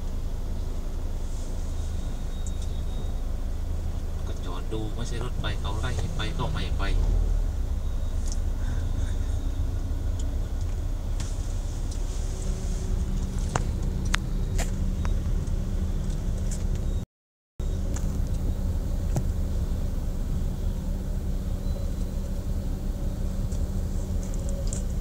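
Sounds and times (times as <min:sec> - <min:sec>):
car engine rumble: 0:00.0 - 0:17.0, 0:17.6 - 0:25.0
road noise inside car: 0:00.0 - 0:17.0, 0:17.6 - 0:25.0.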